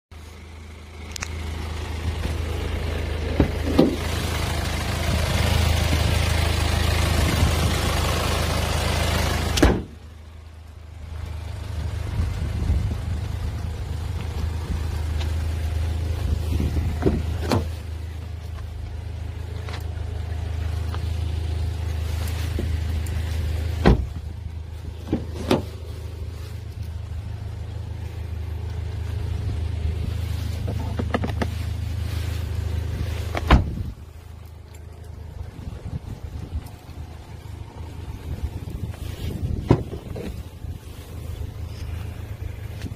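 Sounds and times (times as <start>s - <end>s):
car engine idling: 0.1s - 42.9s
car door opening: 9.6s - 10.0s, 16.8s - 17.8s, 23.8s - 24.2s, 25.0s - 25.8s, 33.3s - 33.8s.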